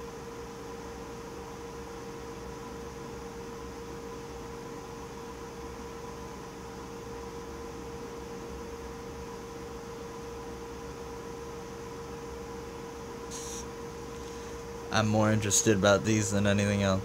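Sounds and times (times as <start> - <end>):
electrical hum: 0.0 - 17.0
faint hiss: 13.3 - 14.6.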